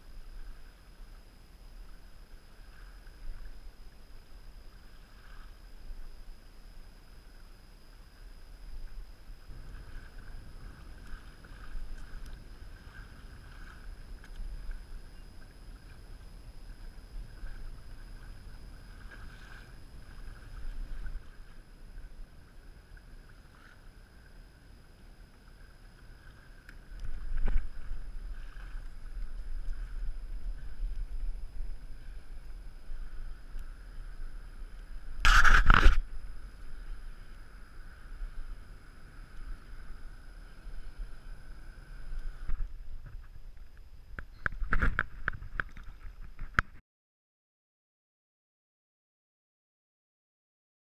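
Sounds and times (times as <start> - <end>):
wind rumble on microphone: 0.0 - 24.4, 25.1 - 46.8
water sloshing against plastic hull: 42.2 - 46.8.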